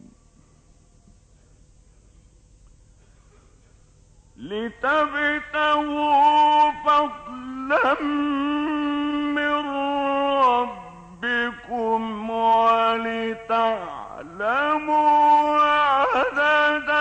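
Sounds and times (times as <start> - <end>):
man chanting melodically: 4.4 - 17.0.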